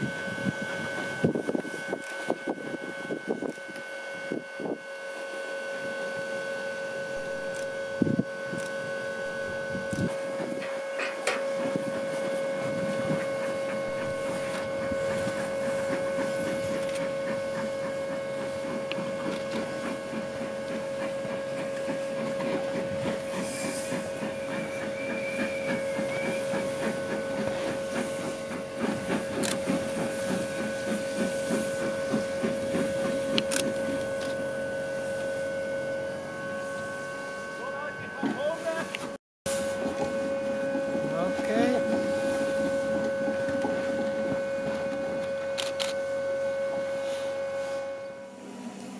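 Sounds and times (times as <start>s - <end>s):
steam hiss: 0.0s - 38.9s, 46.0s - 48.9s
rhythmic steam chuffing: 0.0s - 48.9s
steady high-pitched tone: 30.3s - 48.9s.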